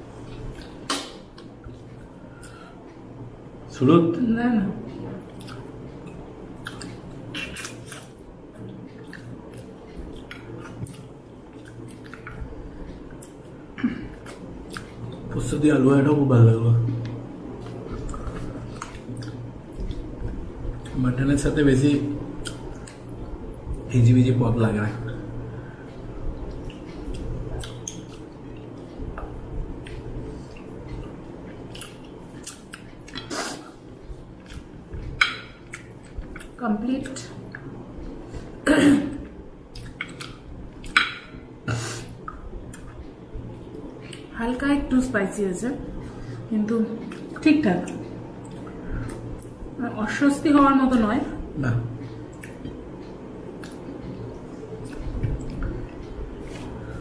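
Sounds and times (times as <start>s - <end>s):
faint low hum: 0.0s - 57.0s
chewing: 5.1s - 15.3s, 16.9s - 21.0s, 26.4s - 38.5s, 39.7s - 41.4s, 42.0s - 44.3s, 46.9s - 49.6s, 52.0s - 57.0s.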